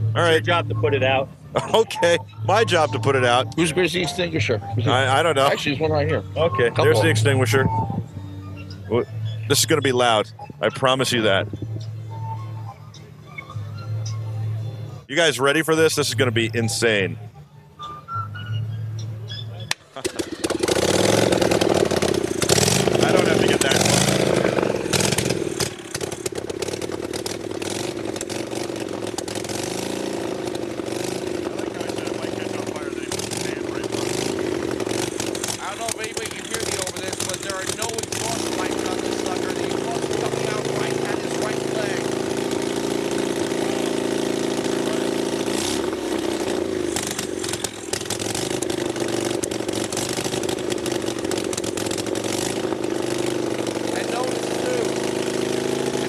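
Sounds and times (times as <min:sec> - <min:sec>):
motorcycle engine firing unmuffled: 0:19.7 - 0:44.0
exhaust crackling pops: 0:19.7 - 0:56.0.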